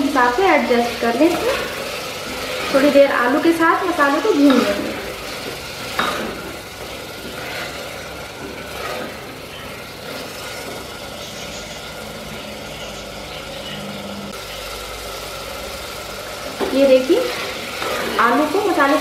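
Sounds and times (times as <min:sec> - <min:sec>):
food sauteing: 0:00.0 - 0:19.0
motor-like hum: 0:00.0 - 0:19.0
wooden spatula scraping pot: 0:00.6 - 0:11.2, 0:16.5 - 0:19.0.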